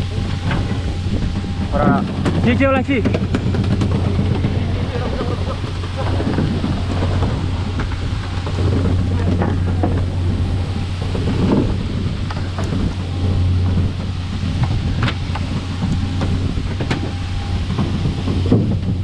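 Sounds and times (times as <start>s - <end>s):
boat engine humming: 0.0s - 19.0s
water splashing: 0.0s - 19.0s
water sprinklers hissing: 0.0s - 19.0s.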